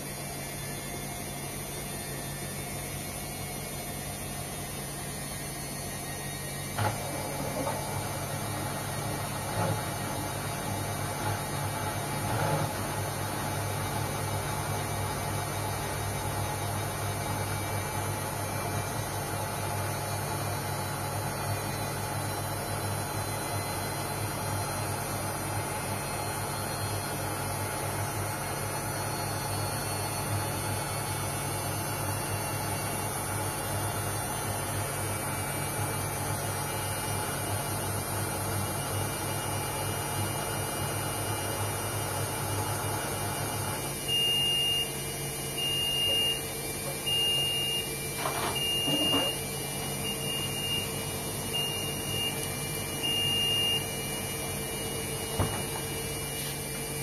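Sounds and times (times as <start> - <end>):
washing machine running: 0.0 - 57.0.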